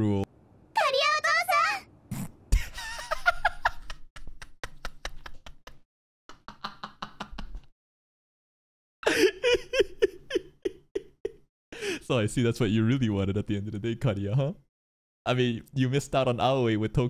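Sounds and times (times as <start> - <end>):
man laughing hard: 9.0 - 11.4.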